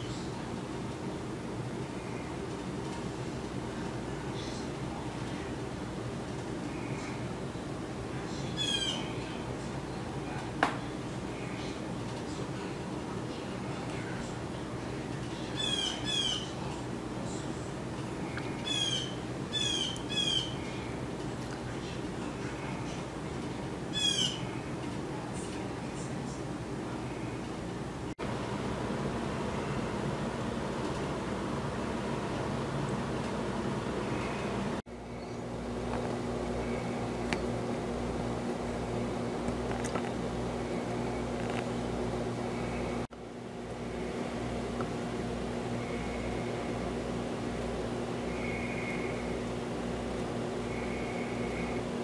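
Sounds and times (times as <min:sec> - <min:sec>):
steady mechanical hum: 0:00.0 - 0:52.0
blue jay harsh calls: 0:08.6 - 0:09.2, 0:15.5 - 0:16.6, 0:18.6 - 0:20.6, 0:23.9 - 0:24.5.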